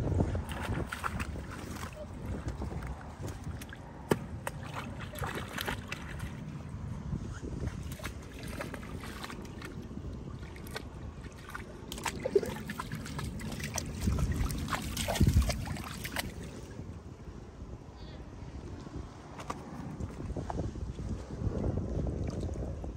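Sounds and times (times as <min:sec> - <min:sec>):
water sloshing and trickling: 0:00.0 - 0:17.2
wind rumble on microphone: 0:00.0 - 0:22.9.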